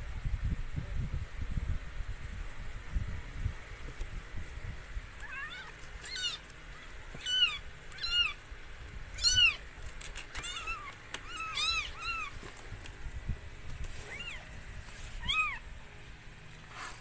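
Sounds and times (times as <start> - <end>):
kitten mewing: 5.2 - 8.4, 10.4 - 12.4.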